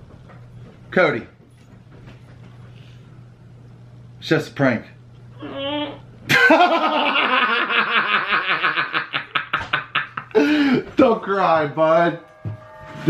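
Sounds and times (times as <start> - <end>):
man laughing loudly: 6.3 - 10.9.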